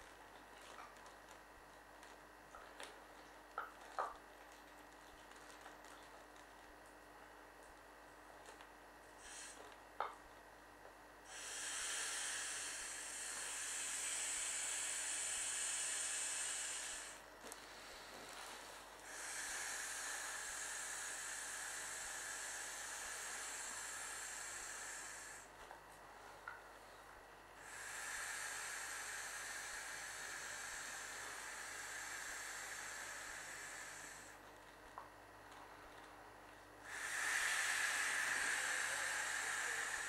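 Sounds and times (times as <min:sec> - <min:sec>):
breath blown into inflatable toy: 0:09.2 - 0:09.7, 0:11.3 - 0:25.5, 0:27.6 - 0:34.4, 0:36.8 - 0:40.0.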